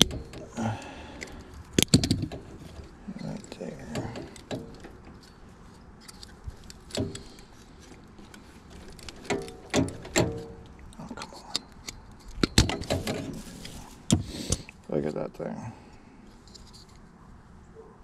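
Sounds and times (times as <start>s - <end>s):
hand tools clattering: 0.0s - 5.4s.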